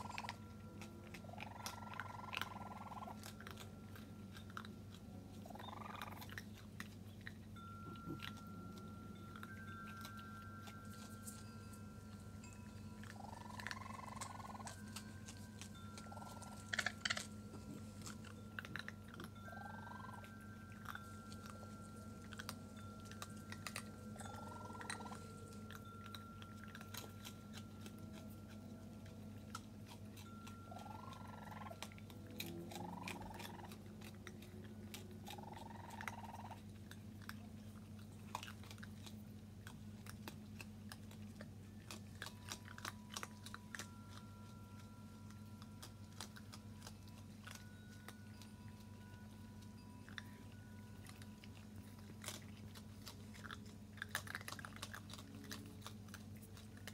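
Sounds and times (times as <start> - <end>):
raccoon kits calling: 0.0 - 3.7, 4.4 - 7.3, 13.0 - 28.4, 29.5 - 37.4
low steady hum: 0.0 - 56.9
raccoons chewing dry kibble: 0.0 - 56.9.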